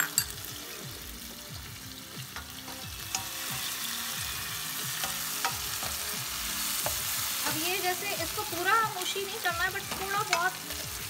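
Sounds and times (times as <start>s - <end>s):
spoon tapping against pan: 0.0s - 0.5s, 2.3s - 3.7s, 4.9s - 6.2s, 6.8s - 7.0s, 9.8s - 10.6s
tomatoes sizzling in oil: 0.0s - 11.0s.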